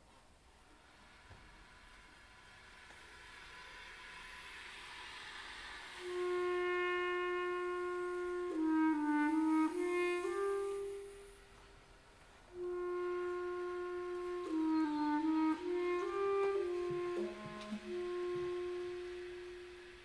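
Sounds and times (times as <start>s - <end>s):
faint airy hiss: 0.0s - 20.0s
clarinet quintet playing slow music: 6.0s - 20.0s.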